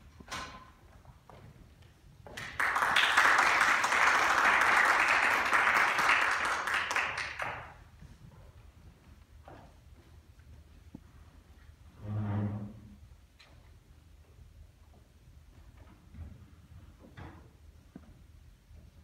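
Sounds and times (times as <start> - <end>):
audience applauding: 2.4 - 7.8.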